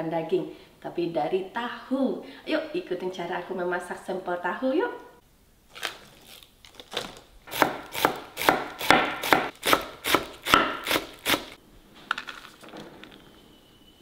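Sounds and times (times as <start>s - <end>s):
knife chopping on wooden board: 7.5s - 11.6s.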